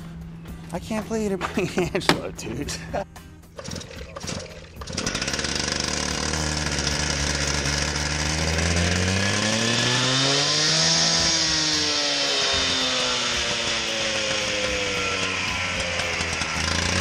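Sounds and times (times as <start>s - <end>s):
cut-off saw revving: 3.6s - 17.0s
blade hissing cutting concrete: 3.7s - 17.0s.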